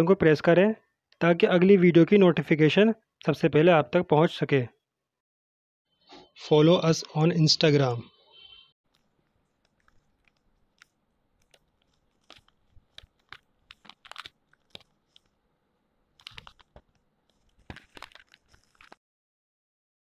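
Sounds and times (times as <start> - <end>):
faint crackling clicks: 8.9 - 15.4.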